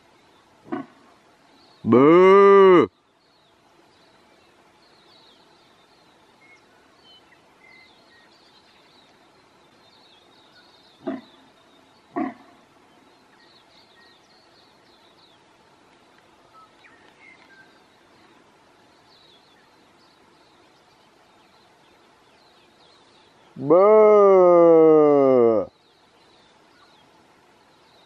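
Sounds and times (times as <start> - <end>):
faint bird chirps: 0.0 - 28.0
deer stag calling: 1.8 - 2.9, 11.0 - 11.4, 23.6 - 25.7.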